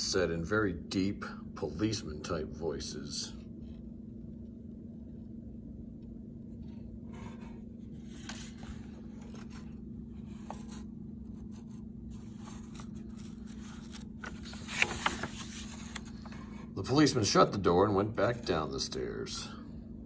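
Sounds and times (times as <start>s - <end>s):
steady low hum: 0.0s - 20.0s
paper pages rustling and turning: 6.5s - 16.7s.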